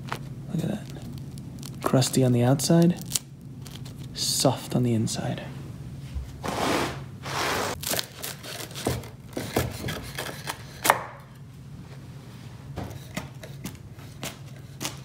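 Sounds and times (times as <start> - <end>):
knife crunching through pizza crust: 13.0 - 15.0.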